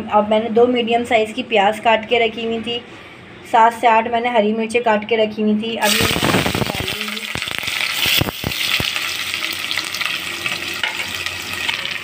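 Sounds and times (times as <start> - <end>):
onions sizzling in hot oil: 5.8 - 12.0.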